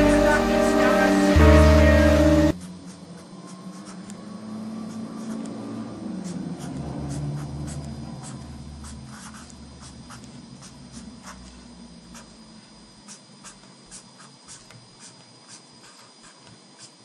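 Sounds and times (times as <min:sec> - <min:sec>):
low hum: 0:00.0 - 0:02.6.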